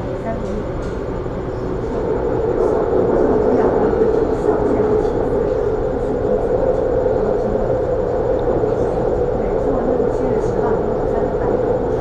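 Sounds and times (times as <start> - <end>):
metro train running: 0.0 - 12.0.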